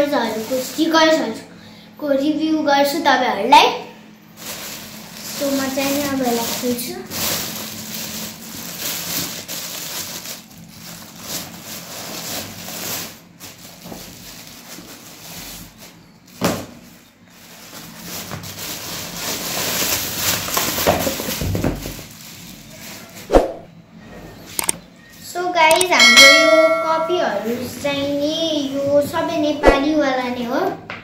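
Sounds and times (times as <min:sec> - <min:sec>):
plastic bag rustling: 0:00.0 - 0:01.2, 0:04.3 - 0:23.3.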